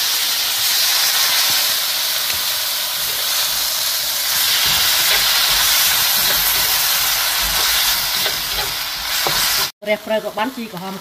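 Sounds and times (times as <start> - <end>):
food sizzling in a wok: 0.0 - 11.0
wooden spatula knocking wok: 4.4 - 9.7.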